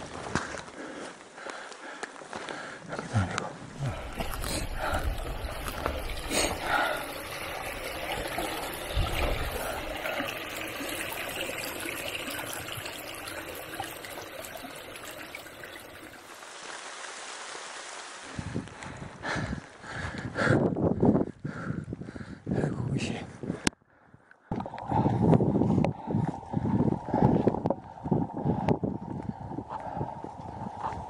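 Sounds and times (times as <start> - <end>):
brook trickling over stones: 3.7 - 18.4.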